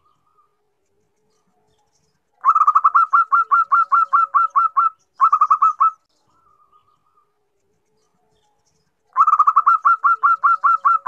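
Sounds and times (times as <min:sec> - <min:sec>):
dove cooing in fast runs: 0:09.2 - 0:11.0.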